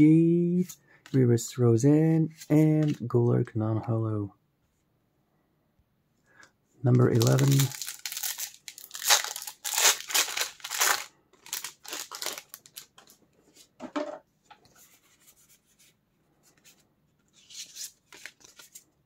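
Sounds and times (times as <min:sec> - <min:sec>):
rustling and handling noises: 0:02.2 - 0:03.2, 0:06.8 - 0:19.0
foil pack tearing and crinkling: 0:07.1 - 0:12.9.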